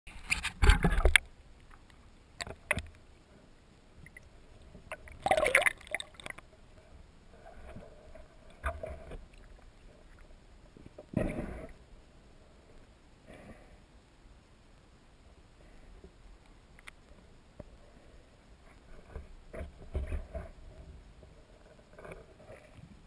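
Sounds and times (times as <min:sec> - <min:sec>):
water splashing and gurgling: 0:04.0 - 0:06.6.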